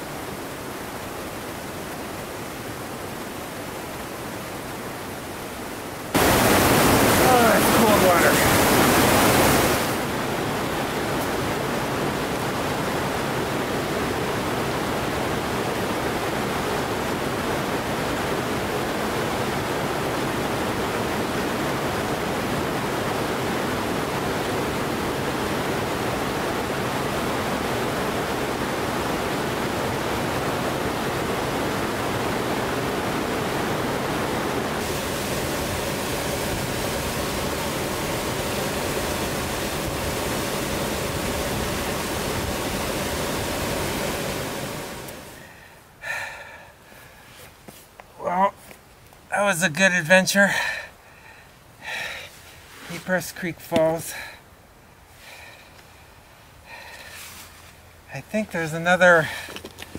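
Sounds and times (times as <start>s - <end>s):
waterfall rushing: 0.0s - 46.8s.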